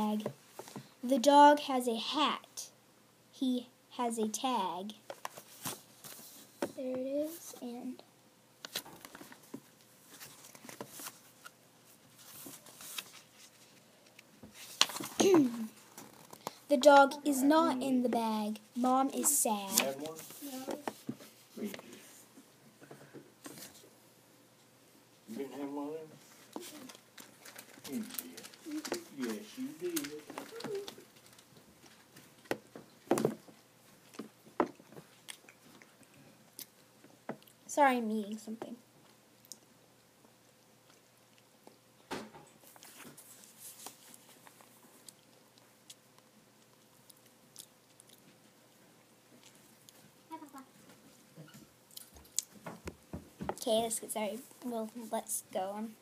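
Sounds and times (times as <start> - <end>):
picture book pages turning: 5.1 - 7.7, 8.6 - 11.6, 12.2 - 16.9, 19.6 - 22.0, 26.4 - 33.4, 42.6 - 44.8
child chewing food: 30.0 - 37.7, 39.2 - 50.3, 50.9 - 52.6.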